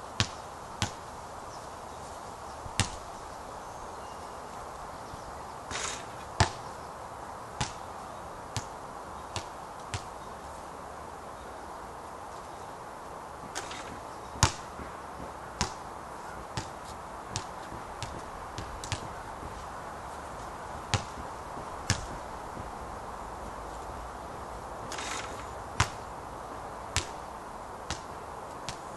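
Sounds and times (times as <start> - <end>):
steady low hiss: 0.0 - 28.9
basketball bouncing on hard court: 17.3 - 19.5, 20.9 - 21.2, 21.8 - 22.7, 25.8 - 26.0.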